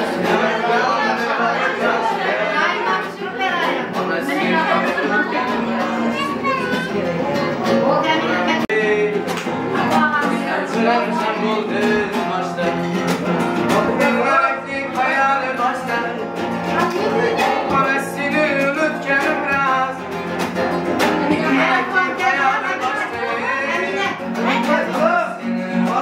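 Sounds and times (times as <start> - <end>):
person singing: 0.0 - 26.0
instrumental accompaniment with beat: 8.5 - 26.0.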